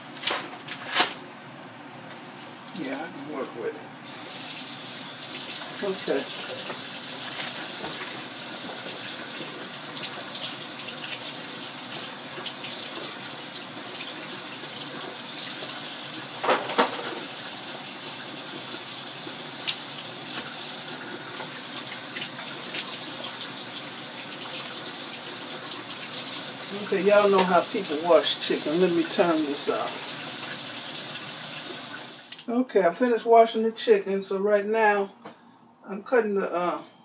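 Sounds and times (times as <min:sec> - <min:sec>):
faucet running into sink: 0:04.3 - 0:32.4.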